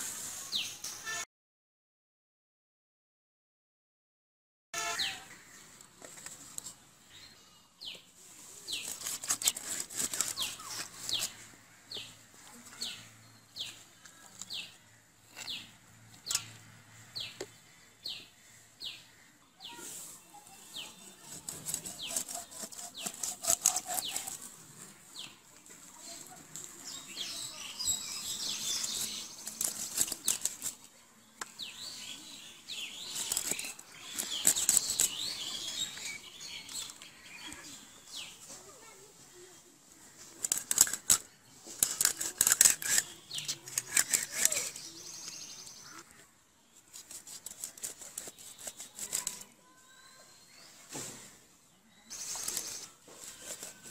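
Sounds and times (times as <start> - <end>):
fish scales scraped on blade: 8.7 - 11.4, 21.2 - 24.5, 33.0 - 35.3, 40.4 - 41.2, 41.8 - 44.9, 46.9 - 49.6
fish being cut on blade: 8.8 - 11.3, 21.3 - 24.4, 41.8 - 44.8, 46.9 - 49.5.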